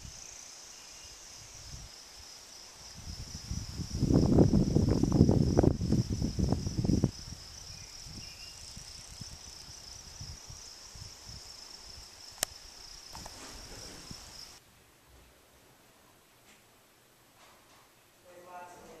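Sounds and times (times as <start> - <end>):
insects chirring: 0.0 - 14.6
wind buffeting microphone: 2.8 - 12.1
sharp click: 12.4 - 13.4.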